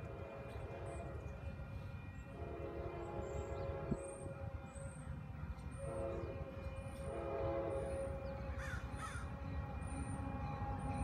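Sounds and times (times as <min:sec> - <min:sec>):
distant train horn: 0:00.0 - 0:11.0
crow cawing: 0:08.6 - 0:09.3.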